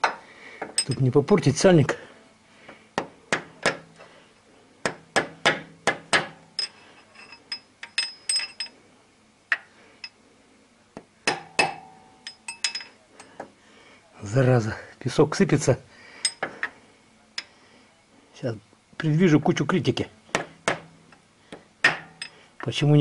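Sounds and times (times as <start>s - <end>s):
hammer tapping metal: 3.0s - 4.0s, 4.8s - 8.7s, 11.2s - 13.4s, 21.8s - 22.4s.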